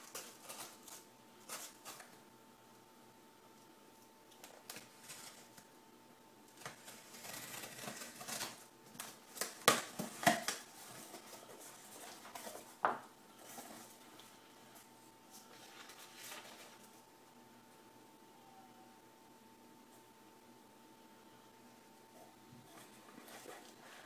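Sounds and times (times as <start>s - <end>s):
packing tape rasping: 6.6s - 12.5s
papers rustling: 6.6s - 17.0s.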